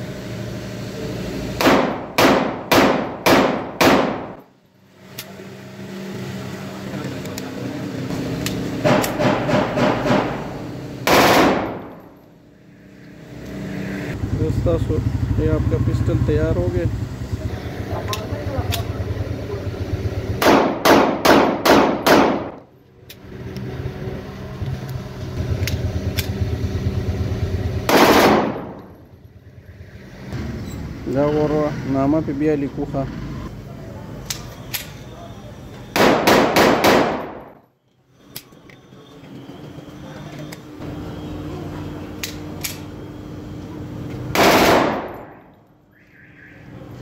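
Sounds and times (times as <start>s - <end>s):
loud gunshot: 1.6s - 4.4s, 11.0s - 11.9s, 20.4s - 22.6s, 27.9s - 28.8s, 36.0s - 37.4s, 44.3s - 45.3s
pistol shots: 1.6s - 4.4s, 11.0s - 11.9s, 20.4s - 22.6s, 27.9s - 28.8s, 35.9s - 37.4s, 44.3s - 45.4s.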